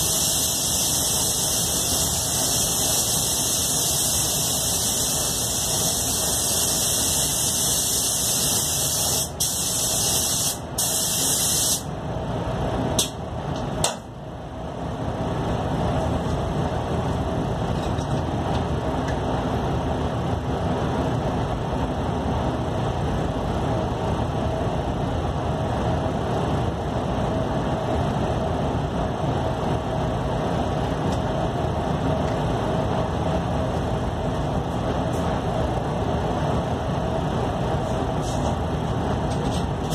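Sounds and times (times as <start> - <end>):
short air puffs: 0.0 - 11.9, 37.9 - 38.6
spray gun hissing: 0.0 - 11.9
ventilation drone: 0.0 - 39.9.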